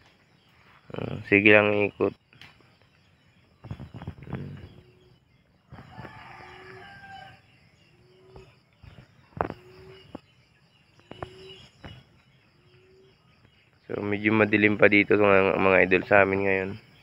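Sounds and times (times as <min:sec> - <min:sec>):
rooster crowing: 0:05.7 - 0:07.5.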